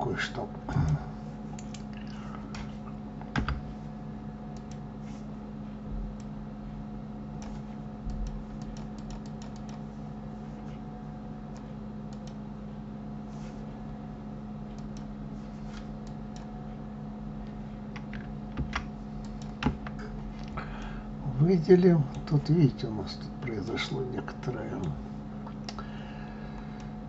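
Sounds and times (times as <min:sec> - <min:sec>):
low electrical hum: 0:00.0 - 0:27.0
computer keyboard and mouse clicks: 0:01.6 - 0:03.7, 0:04.5 - 0:04.8, 0:07.4 - 0:09.8, 0:11.5 - 0:12.4, 0:14.7 - 0:15.1, 0:17.4 - 0:20.0.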